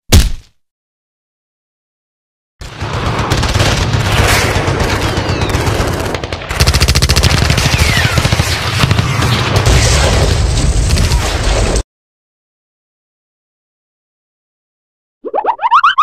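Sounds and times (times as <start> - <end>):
rapid automatic gunfire: 2.6 - 10.3.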